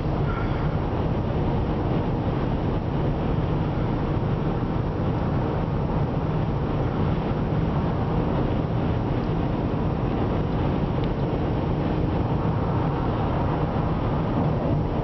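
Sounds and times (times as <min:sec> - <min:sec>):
car road noise from cabin: 0:00.0 - 0:15.0.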